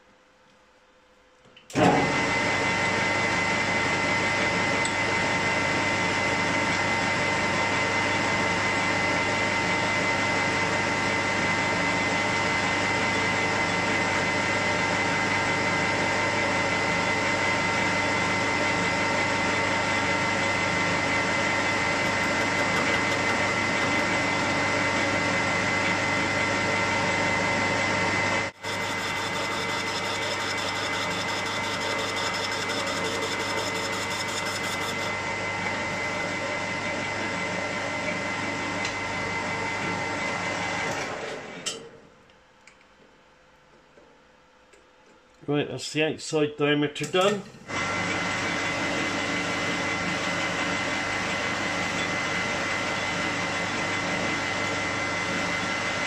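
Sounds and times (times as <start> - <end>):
metal lathe whining: 16.0 - 27.3, 28.4 - 37.2, 47.7 - 56.0.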